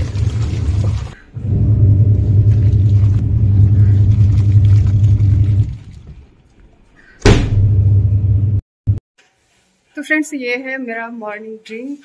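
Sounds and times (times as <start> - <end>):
washing machine motor hum: 0.0 - 6.1, 7.4 - 8.6
loud knock: 7.2 - 7.8.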